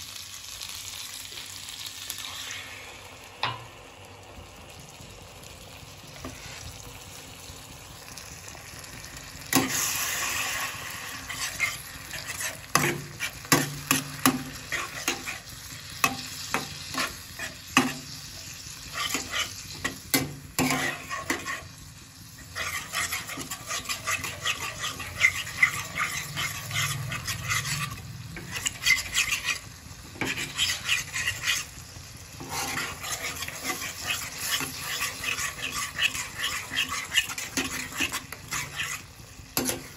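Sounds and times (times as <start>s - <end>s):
gravy sizzling in a frying pan: 0.0s - 39.9s
spatula scraping a pan: 6.2s - 6.7s, 9.0s - 39.9s.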